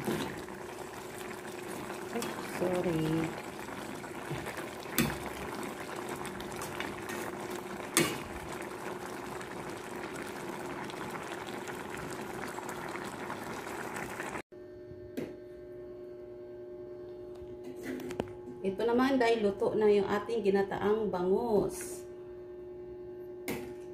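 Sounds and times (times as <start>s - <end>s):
broth simmering and bubbling: 0.0s - 14.5s.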